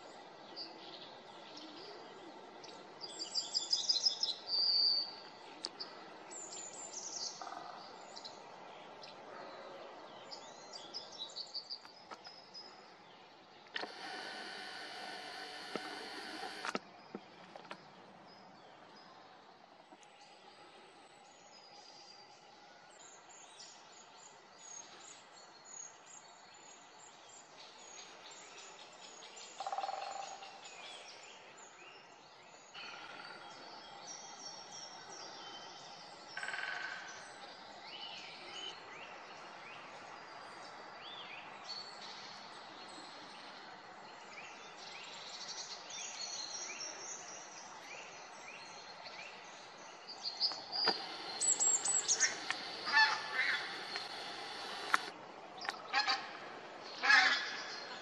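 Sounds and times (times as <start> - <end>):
high bird chirps: 50.3 - 55.8
large bird calling loudly: 50.5 - 55.1.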